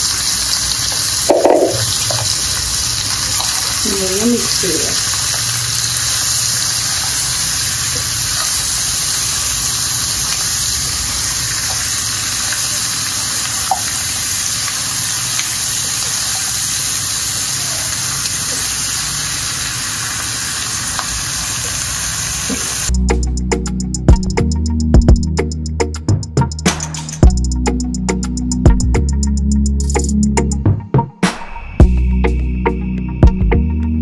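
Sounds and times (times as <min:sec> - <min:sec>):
food sizzling in hot oil: 0:00.0 - 0:22.9.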